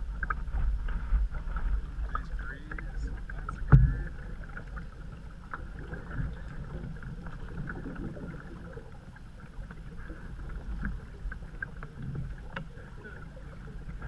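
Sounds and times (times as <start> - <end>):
low steady rumble: 0.0 - 14.0
paddle pulling through water: 0.0 - 14.0.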